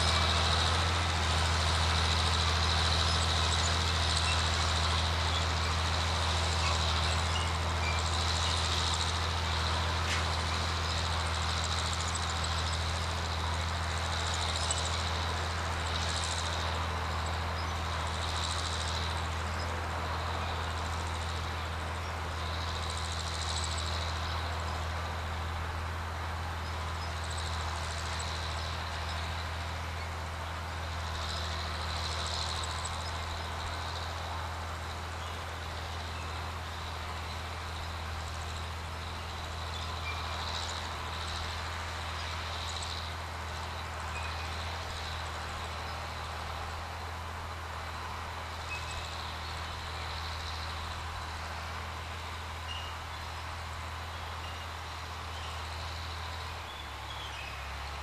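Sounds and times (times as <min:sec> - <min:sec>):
tractor engine under load: 0:00.0 - 0:58.0.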